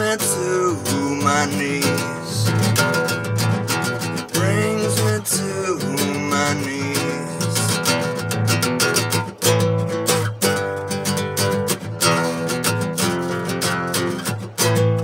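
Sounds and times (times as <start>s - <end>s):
man singing: 0.0s - 3.0s, 4.2s - 8.1s
acoustic guitar strumming: 0.0s - 15.0s.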